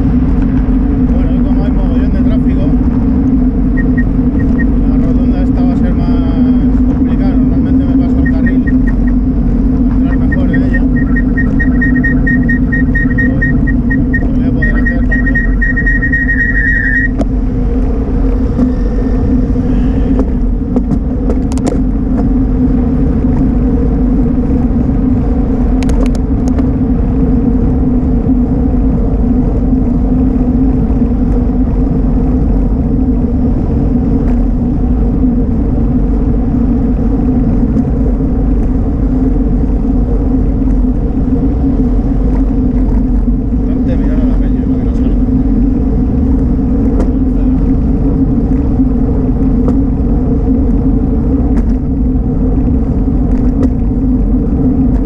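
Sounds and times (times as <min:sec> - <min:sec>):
cars passing: 0:00.0 - 0:55.0
road and wind noise: 0:00.0 - 0:55.0
high rapidly pulsing tone: 0:03.6 - 0:05.0, 0:07.4 - 0:17.2.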